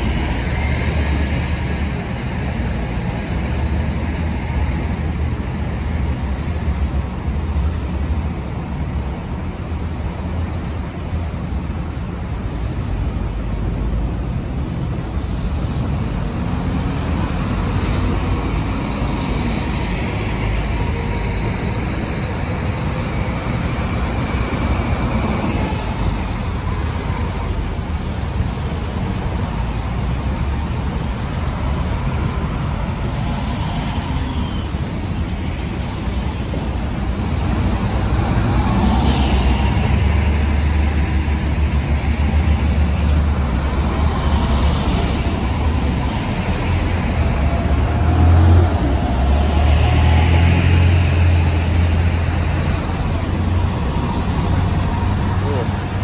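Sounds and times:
bus diesel engines rumbling: 0.0 - 56.0
general traffic noise: 0.0 - 56.0.

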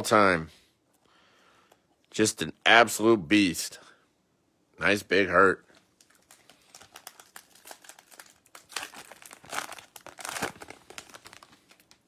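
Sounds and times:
card pack wrapper crinkling: 5.7 - 12.0.

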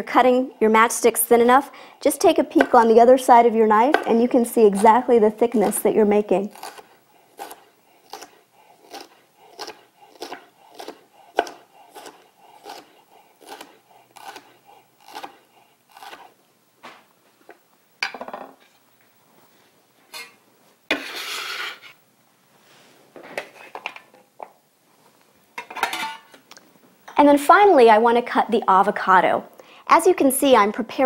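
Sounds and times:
knife chopping on wooden board: 7.4 - 16.2.

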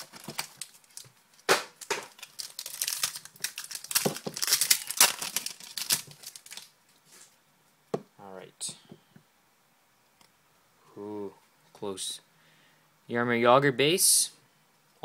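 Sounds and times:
card packaging rustling: 0.0 - 6.7.

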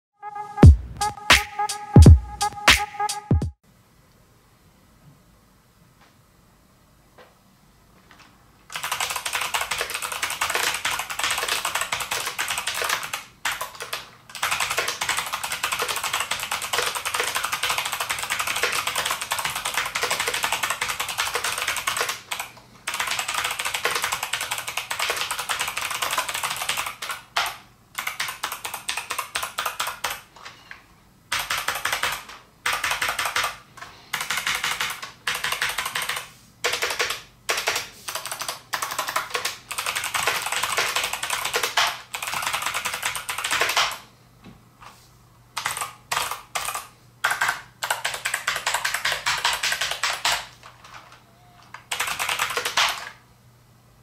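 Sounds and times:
fast keyboard typing: 8.7 - 30.3, 31.3 - 44.0, 45.5 - 51.1, 51.7 - 53.2.

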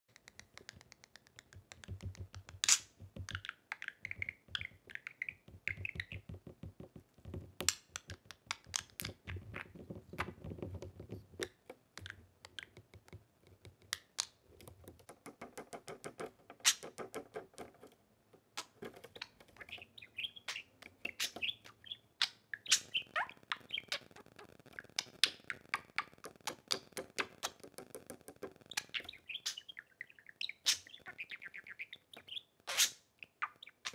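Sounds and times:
sharp clicks and taps: 0.1 - 19.9, 23.5 - 29.2
budgerigar chirping and warbling: 19.2 - 26.2, 28.6 - 33.9.

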